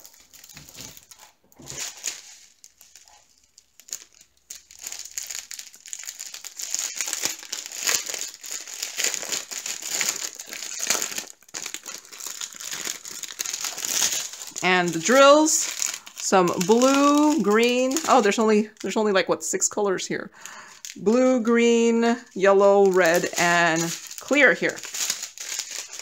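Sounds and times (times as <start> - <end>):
plastic packaging crinkling: 0.0 - 19.7, 20.4 - 26.0.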